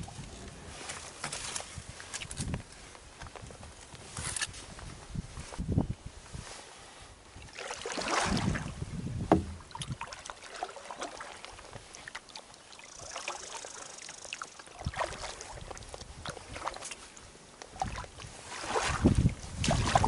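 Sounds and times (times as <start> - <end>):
paddle strokes swishing in water: 7.3 - 20.0
paddle knocking on hull: 9.2 - 10.1.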